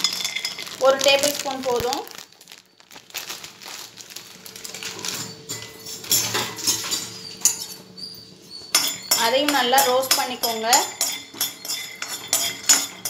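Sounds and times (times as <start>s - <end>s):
peanuts ticking and crackling: 0.0s - 5.4s.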